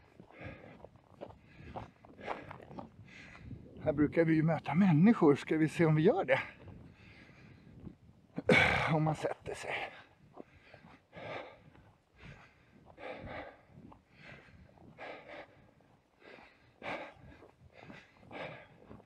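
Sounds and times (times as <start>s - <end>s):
person breathing heavily: 0.0s - 3.8s, 6.4s - 7.8s, 9.6s - 19.0s.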